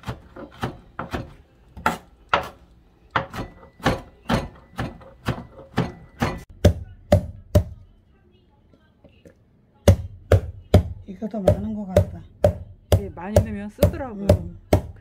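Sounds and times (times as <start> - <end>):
knife chopping on cutting board: 0.0 - 2.6.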